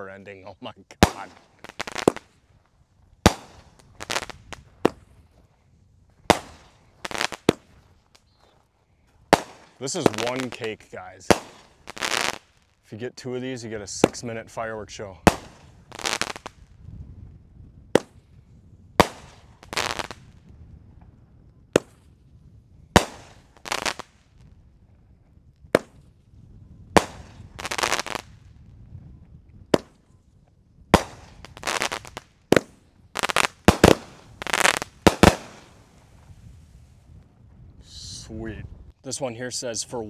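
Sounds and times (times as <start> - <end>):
fireworks firing sharp reports: 0.0 - 2.5, 3.2 - 5.2, 6.2 - 8.5, 9.2 - 16.7, 18.0 - 18.3, 19.0 - 20.4, 21.7 - 22.1, 22.9 - 24.6, 26.9 - 28.6, 30.9 - 36.4
firework bursts: 0.4 - 5.4, 6.2 - 8.5, 9.2 - 14.5, 15.1 - 16.8, 18.0 - 18.4, 19.0 - 20.5, 21.7 - 22.2, 22.9 - 24.5, 26.9 - 28.6, 30.9 - 37.0.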